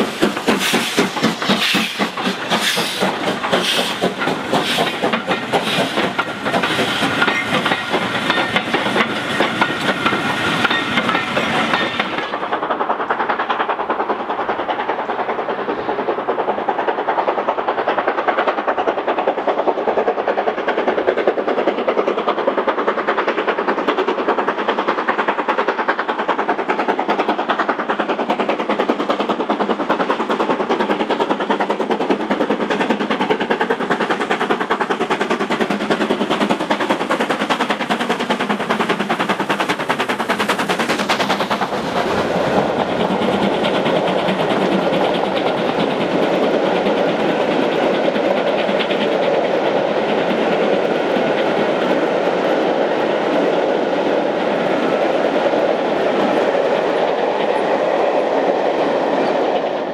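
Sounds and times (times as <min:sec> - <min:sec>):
coaches clattering over rail joints: 0:00.0 - 0:19.3
steam locomotive exhaust beats: 0:00.0 - 0:59.9.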